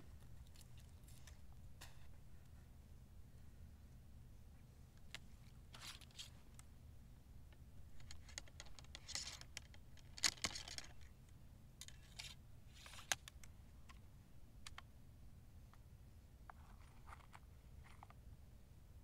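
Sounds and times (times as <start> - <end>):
faint rustling of paper: 0.0 - 3.6, 4.5 - 6.6, 7.8 - 11.2, 11.8 - 14.1, 15.7 - 18.4.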